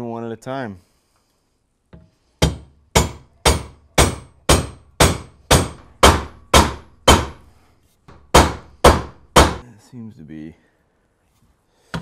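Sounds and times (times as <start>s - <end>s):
hammer striking metal rivets: 2.0s - 7.4s, 8.1s - 9.6s.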